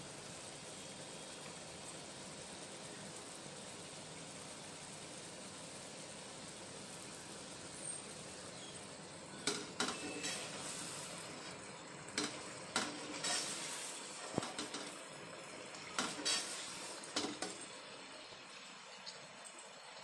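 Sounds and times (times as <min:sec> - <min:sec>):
meat sizzling in oil: 0:00.0 - 0:18.4
spatula scraping a pan: 0:09.9 - 0:11.3, 0:12.3 - 0:14.7, 0:16.0 - 0:17.1.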